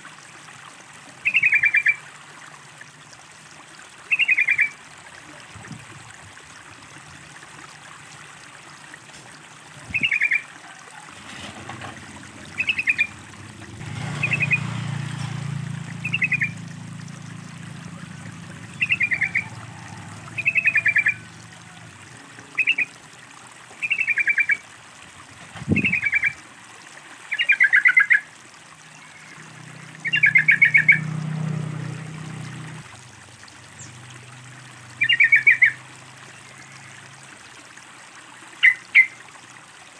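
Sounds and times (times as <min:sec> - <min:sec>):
water trickling: 0:00.0 - 0:39.9
bird chattering calls: 0:12.6 - 0:13.1.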